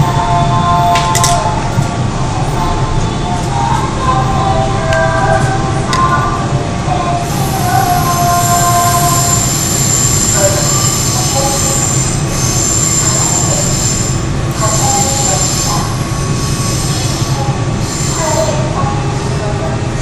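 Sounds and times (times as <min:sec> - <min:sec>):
rumble of train wheels on rail: 0:00.0 - 0:20.0
high-pitched wheel squeal: 0:07.3 - 0:18.6.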